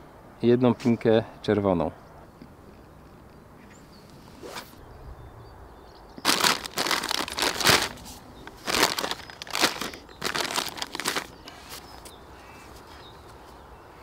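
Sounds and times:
plastic bags crinkling: 0:06.2 - 0:12.0.

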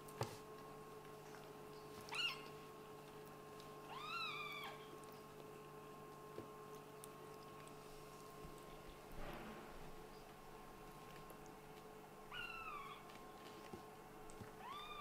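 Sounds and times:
kitten meowing: 0:02.1 - 0:02.5, 0:03.9 - 0:04.9, 0:12.3 - 0:13.0.

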